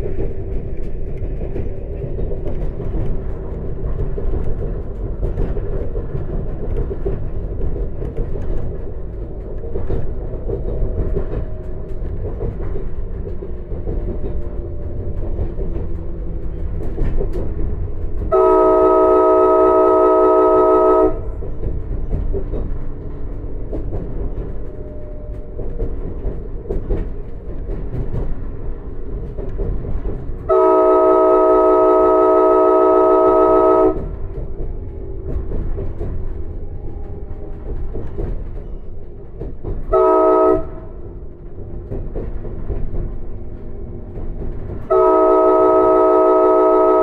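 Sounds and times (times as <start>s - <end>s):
train wheels rumbling on rail: 0.0s - 47.0s
train air horn blasts: 18.3s - 21.3s, 30.5s - 34.2s, 39.9s - 40.9s, 44.9s - 47.0s.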